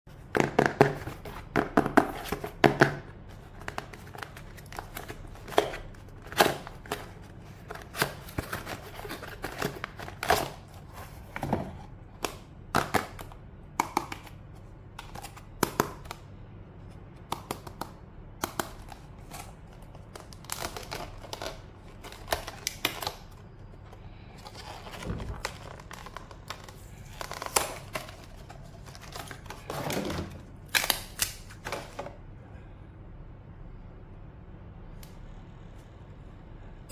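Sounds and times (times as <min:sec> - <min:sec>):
plastic package handling: 0:02.0 - 0:13.3, 0:18.5 - 0:32.2.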